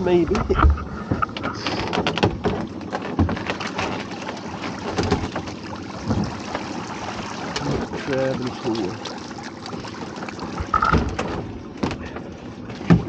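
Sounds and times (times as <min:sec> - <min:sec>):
water splashing and streaming: 0:00.0 - 0:13.0
pot knocking against boat: 0:09.7 - 0:13.0.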